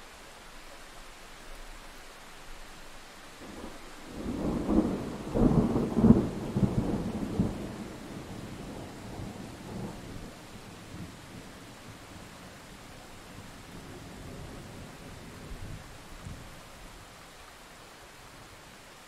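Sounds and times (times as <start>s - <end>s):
steady rain hiss: 0.0s - 19.0s
thunder rumbling: 3.4s - 16.5s.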